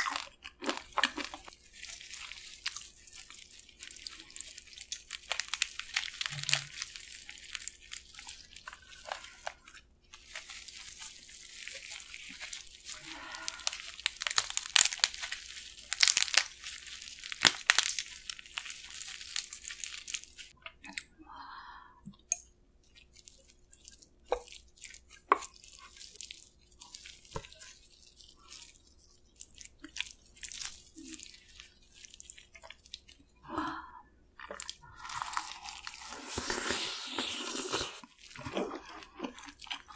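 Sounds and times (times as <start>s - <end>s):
crab shell crackling: 0.0s - 20.6s
sticky sauce squelching: 0.0s - 21.1s, 22.8s - 33.4s, 34.4s - 39.9s.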